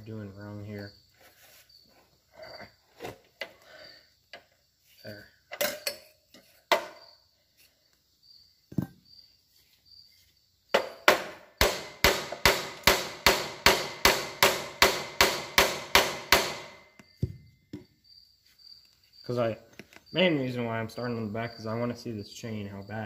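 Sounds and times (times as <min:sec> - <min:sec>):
hammer striking steel frame: 0:10.8 - 0:16.9.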